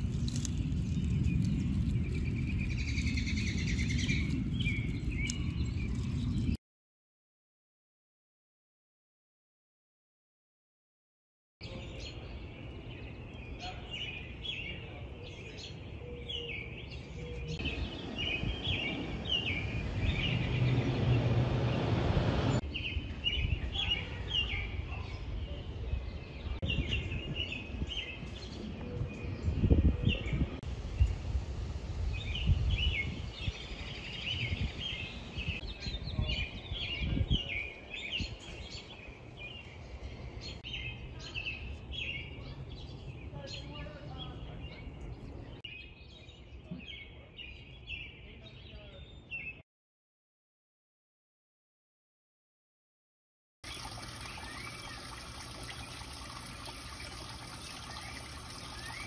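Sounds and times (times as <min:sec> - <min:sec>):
songbirds chirping and singing: 0:00.0 - 0:06.6, 0:11.6 - 0:21.2, 0:22.6 - 0:30.6, 0:32.1 - 0:49.6, 0:53.7 - 0:59.0.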